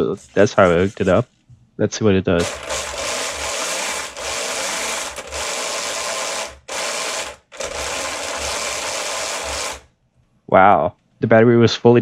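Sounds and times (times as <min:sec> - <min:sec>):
electric motor whirring: 0:02.4 - 0:09.9.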